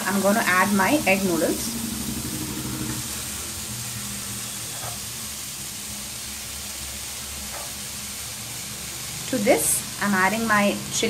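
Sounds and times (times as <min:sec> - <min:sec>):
low steady hum: 0:00.0 - 0:06.5
vegetables sizzling in a pot: 0:00.0 - 0:11.0.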